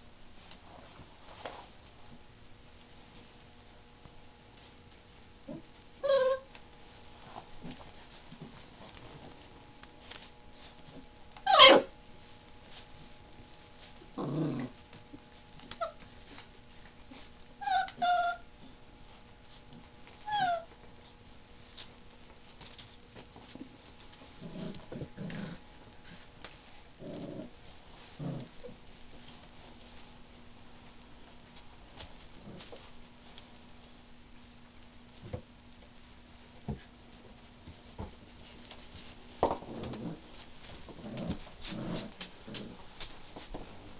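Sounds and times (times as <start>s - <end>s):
puppies growling: 5.4s - 6.4s, 11.4s - 11.9s, 13.8s - 16.4s, 23.8s - 28.8s, 32.3s - 32.9s, 39.4s - 43.9s
puppies yelping: 11.5s - 11.9s, 17.6s - 18.4s.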